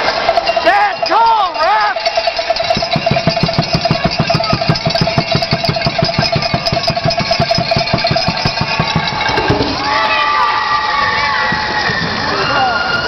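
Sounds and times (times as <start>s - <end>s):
fast drumming or stomping: 2.4s - 10.2s.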